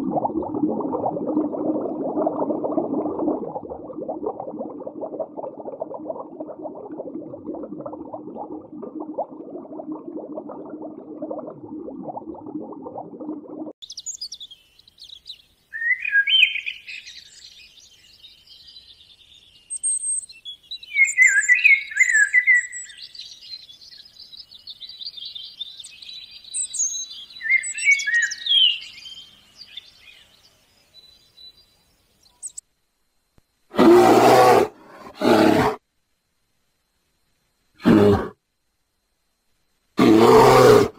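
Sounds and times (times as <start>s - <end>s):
chaffinch singing: 13.8s - 32.6s
faint bird twittering: 13.8s - 32.7s.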